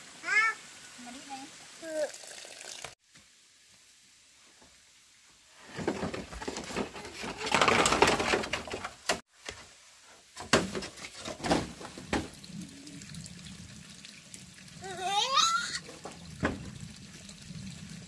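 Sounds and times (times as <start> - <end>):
bamboo pole scraping and rustling: 5.5 - 12.1.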